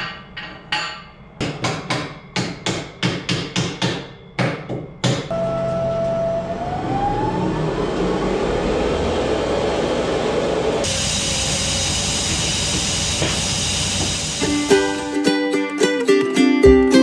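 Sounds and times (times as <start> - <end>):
machinery whine: 5.3 - 15.2
high hiss: 10.8 - 15.3.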